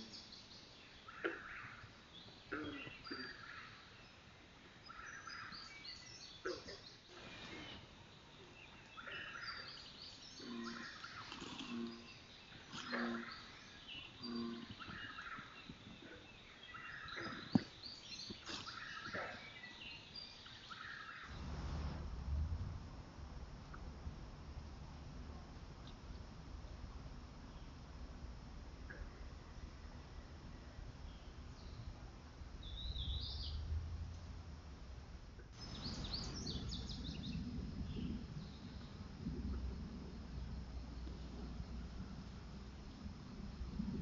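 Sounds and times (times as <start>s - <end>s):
frogs and toads calling: 1.1s - 1.9s, 2.5s - 3.9s, 6.4s - 7.9s, 8.9s - 17.7s, 18.4s - 19.8s
low steady rumble: 21.3s - 44.0s.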